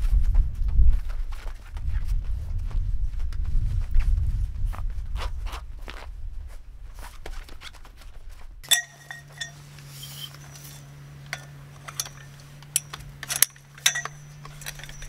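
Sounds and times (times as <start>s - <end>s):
metal poles clinking: 8.6s - 15.0s.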